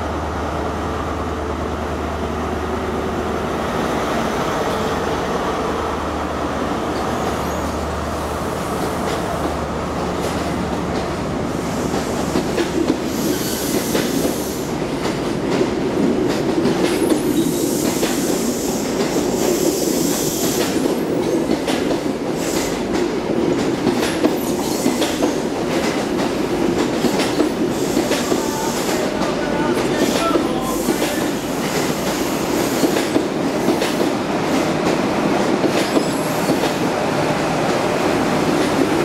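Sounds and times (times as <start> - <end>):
train wheels clattering over rail joints: 20.2 - 36.8.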